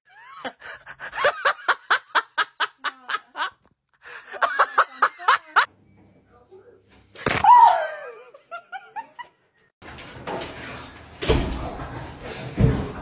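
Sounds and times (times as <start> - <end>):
person laughing: 0.1 - 5.7, 8.0 - 9.3.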